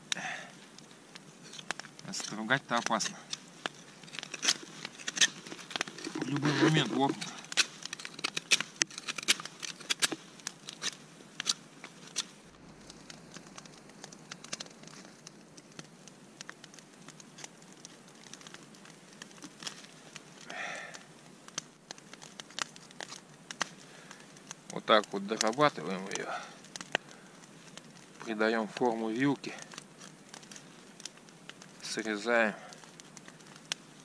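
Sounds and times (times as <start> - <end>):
knife carving frozen wood: 1.3 - 12.4.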